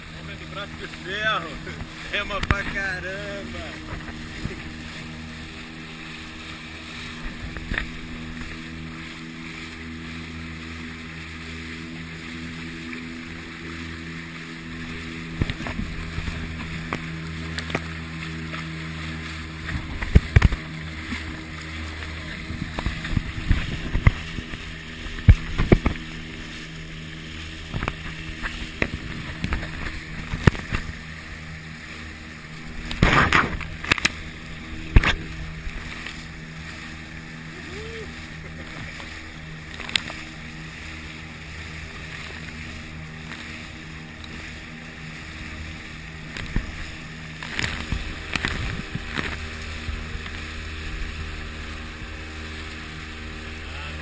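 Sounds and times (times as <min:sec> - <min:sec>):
outboard motor running: 0:00.0 - 0:54.0
water rushing: 0:00.0 - 0:54.0
spray slapping against hull: 0:00.2 - 0:37.4, 0:38.1 - 0:54.0.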